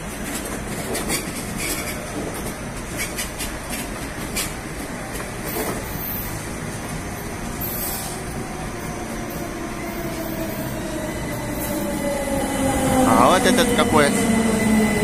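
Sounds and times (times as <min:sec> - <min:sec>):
train rumbling: 0:00.0 - 0:15.0
wheels clicking over track joints: 0:00.1 - 0:05.9.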